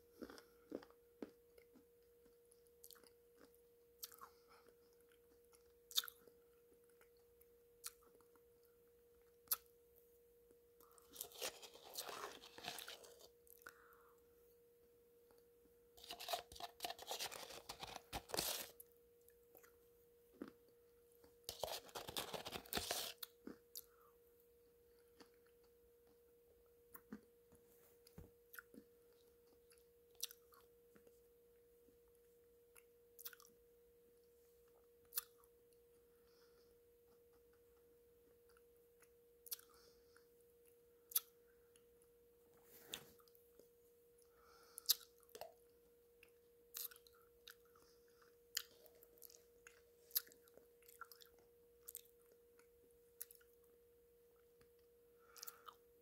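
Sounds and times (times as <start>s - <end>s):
faint steady hum: 0.0s - 56.0s
chewing: 10.8s - 13.8s, 16.0s - 18.7s, 46.2s - 53.6s.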